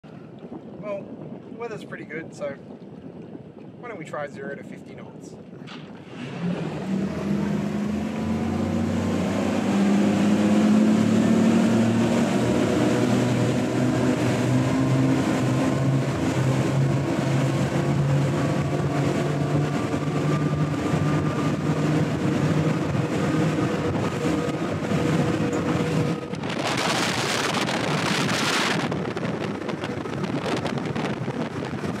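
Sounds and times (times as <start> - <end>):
hull and wind noise: 0.0 - 32.0
loud rush of wind: 0.1 - 32.0
outboard engines accelerating: 5.6 - 32.0.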